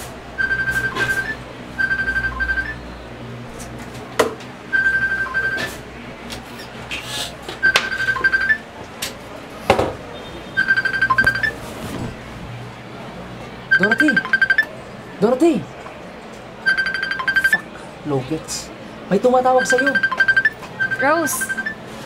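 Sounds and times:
phone ringtone: 0.4 - 2.9, 4.7 - 5.8, 7.6 - 8.7, 10.6 - 11.6, 13.7 - 14.7, 16.6 - 17.6, 19.5 - 21.9.

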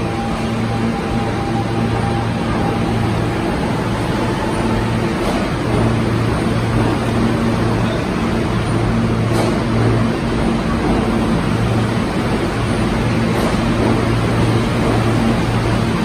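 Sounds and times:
subway train rumbling: 0.0 - 16.0.

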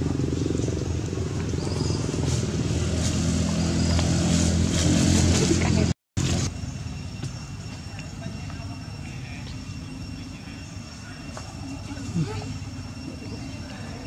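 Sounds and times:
low engine hum: 0.0 - 6.6.

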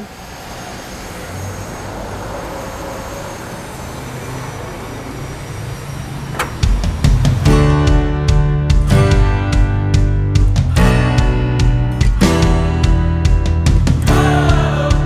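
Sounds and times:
vehicle passing: 0.0 - 8.8.

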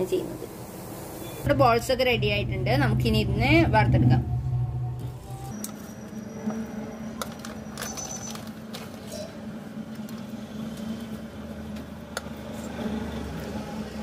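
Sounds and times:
steady low hum: 0.4 - 5.5.

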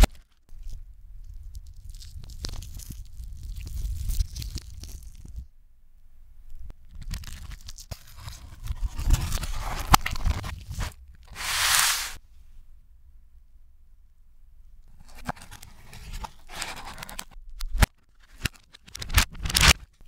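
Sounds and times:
fried breading crackling and crunching: 0.0 - 5.4
cardboard box rustling: 10.7 - 12.2, 15.0 - 17.3.

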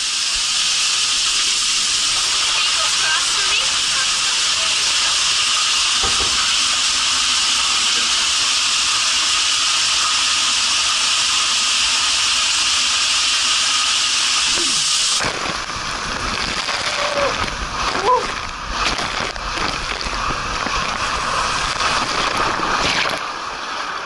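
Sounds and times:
hiss of water spraying: 0.0 - 24.0.

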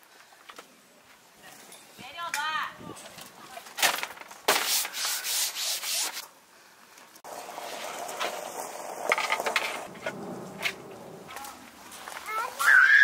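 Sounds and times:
wood rubbing and scraping: 3.9 - 6.2, 7.3 - 12.3.

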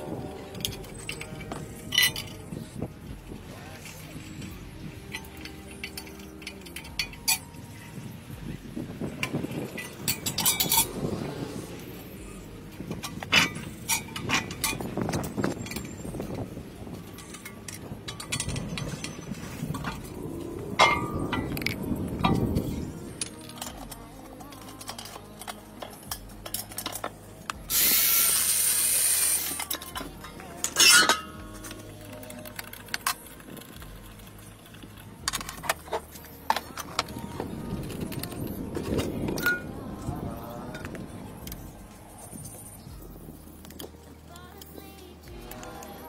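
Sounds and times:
metal spanners clinking and scraping: 0.0 - 2.9, 3.6 - 8.1, 9.0 - 46.0
low handling noise: 0.0 - 46.0
metal tools clicking on bolt: 5.0 - 7.9, 9.2 - 11.1, 12.8 - 16.4, 17.0 - 39.8
angle grinder cutting metal: 27.7 - 29.9.

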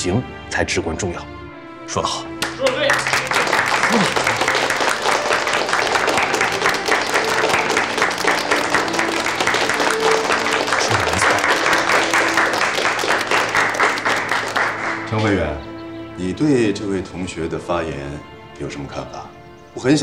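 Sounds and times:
background music sustained notes: 0.0 - 20.0
people clapping: 2.4 - 15.5.

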